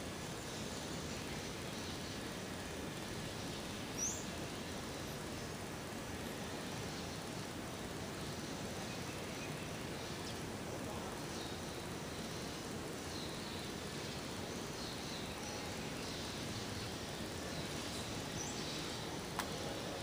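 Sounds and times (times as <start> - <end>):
background hiss and rumble: 0.0 - 20.0
sharp click: 19.4 - 19.6.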